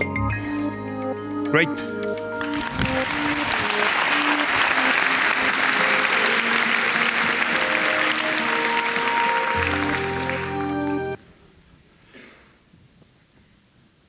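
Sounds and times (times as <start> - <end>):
music of held notes: 0.0 - 11.2
audience applauding: 2.1 - 11.2.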